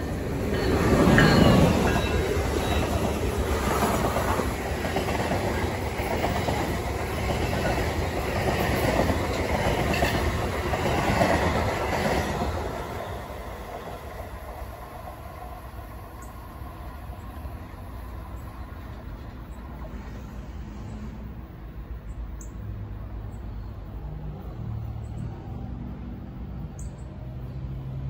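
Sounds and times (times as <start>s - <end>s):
wheels clattering over rail joints: 0.0s - 13.9s
electric train passing at speed: 0.0s - 28.0s.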